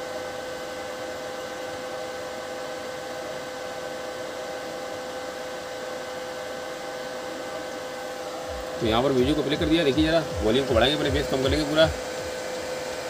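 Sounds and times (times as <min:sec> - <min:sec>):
faint constant hum: 0:06.8 - 0:13.0
steady hiss: 0:07.3 - 0:13.0.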